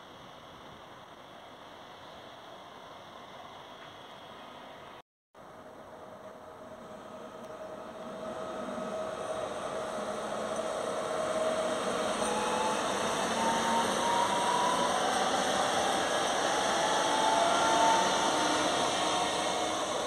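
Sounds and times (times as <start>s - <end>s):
train rolling noise: 0.0s - 20.0s
electric drive whine rising: 6.4s - 20.0s.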